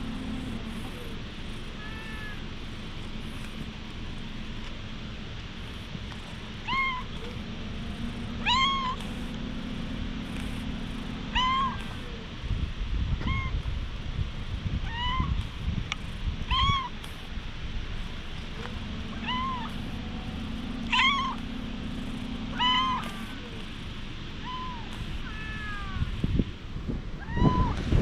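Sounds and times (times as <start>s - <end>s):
cat meowing: 0.4s - 2.4s, 6.6s - 7.2s, 8.4s - 9.0s, 11.3s - 12.2s, 13.2s - 13.6s, 14.8s - 15.4s, 16.5s - 16.9s, 19.2s - 19.8s, 20.9s - 21.4s, 22.5s - 23.6s, 24.4s - 26.2s, 27.2s - 27.8s.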